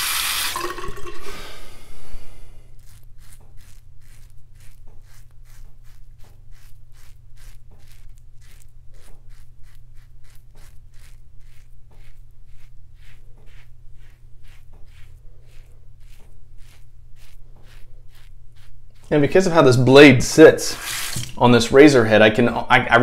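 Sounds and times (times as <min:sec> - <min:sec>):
running tap water: 0:00.0 - 0:01.7, 0:20.7 - 0:21.4
razor scraping stubble: 0:02.1 - 0:22.4.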